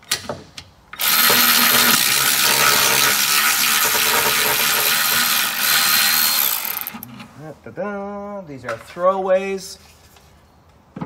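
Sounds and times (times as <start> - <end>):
cordless ratchet motor running: 1.0 - 7.1
ratchet clicks: 1.0 - 7.1.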